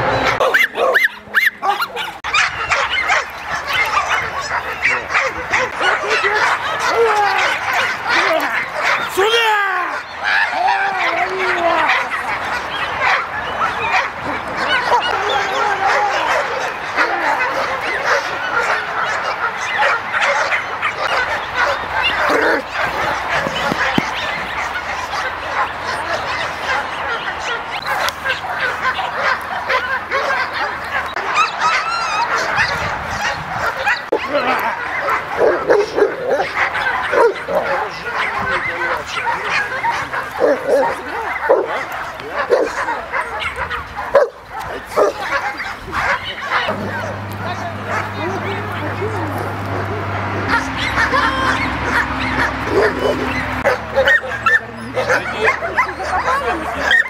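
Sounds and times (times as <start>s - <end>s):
dogs barking and yelping: 0.0s - 57.0s.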